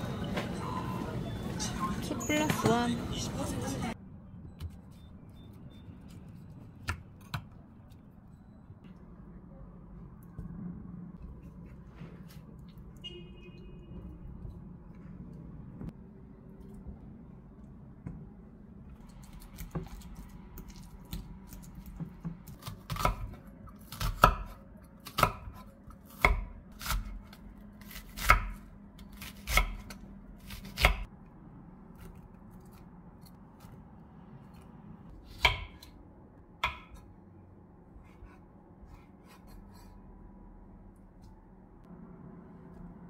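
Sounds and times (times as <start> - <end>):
knife chopping on wooden board: 36.6 - 37.0.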